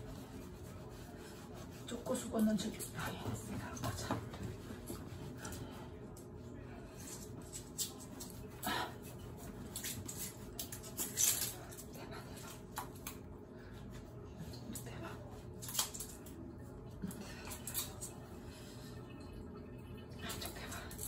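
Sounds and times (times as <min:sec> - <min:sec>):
towel rubbing wet fur: 0:00.0 - 0:06.0.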